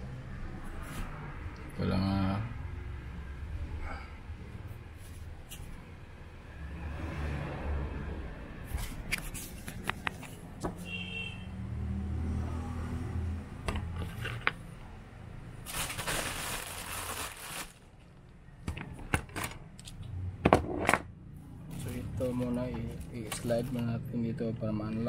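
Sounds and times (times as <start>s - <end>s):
rustling: 15.6s - 18.1s.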